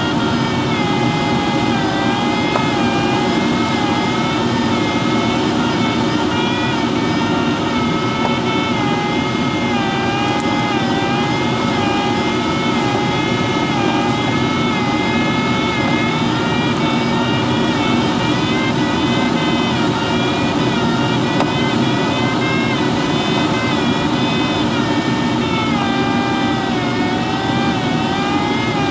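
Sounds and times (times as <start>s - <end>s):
airflow rushing over canopy: 0.0s - 28.9s
wavering whistling tone: 0.0s - 28.9s.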